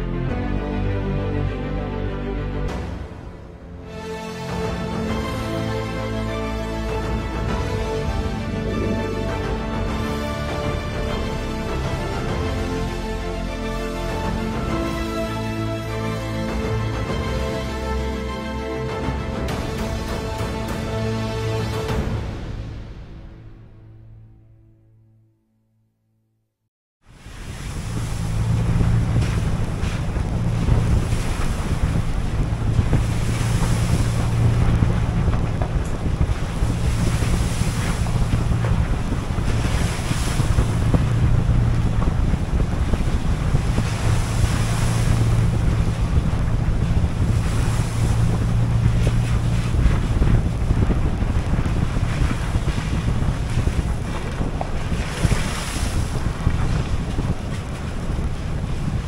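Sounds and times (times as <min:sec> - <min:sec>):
wind rush on microphone: 0:04.5 - 0:17.8, 0:27.0 - 0:59.0
diesel locomotive engine hum: 0:27.2 - 0:59.0.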